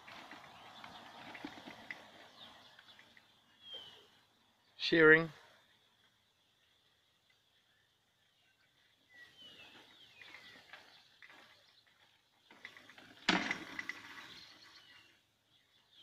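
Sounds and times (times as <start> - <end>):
horses munching feed: 0.0 - 2.8.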